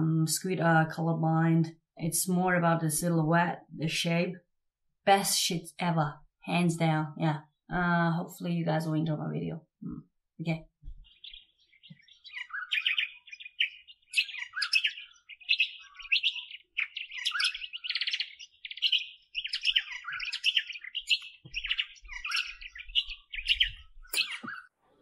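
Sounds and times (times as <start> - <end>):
birds chirping and trilling: 10.9 - 25.0.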